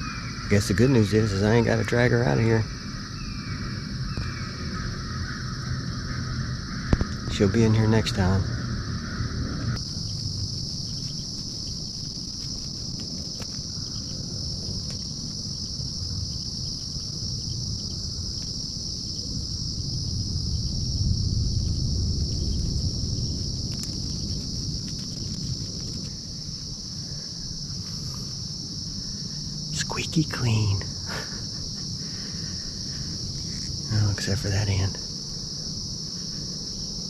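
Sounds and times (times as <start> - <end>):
insects droning: 0.0 - 37.0
low rumble: 19.2 - 34.3.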